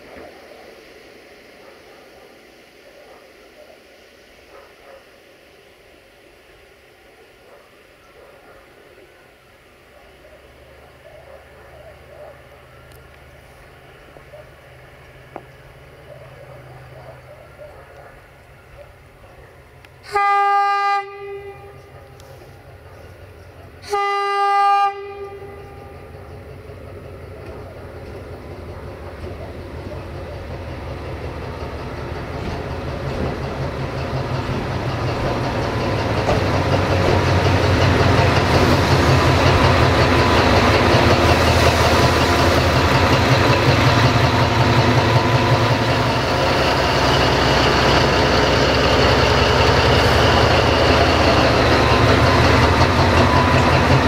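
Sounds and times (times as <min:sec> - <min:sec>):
diesel locomotive engine passing: 0:00.0 - 0:54.0
locomotive horn blasts: 0:20.0 - 0:22.0, 0:23.8 - 0:26.1.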